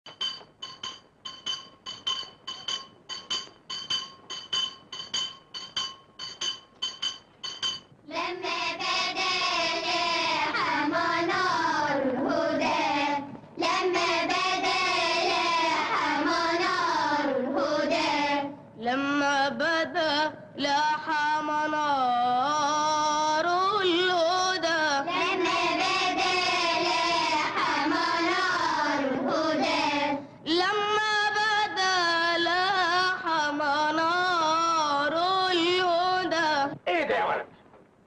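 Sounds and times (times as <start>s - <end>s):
repeated metallic ringing strikes: 0.1s - 8.0s
short breaths: 30.2s - 30.5s.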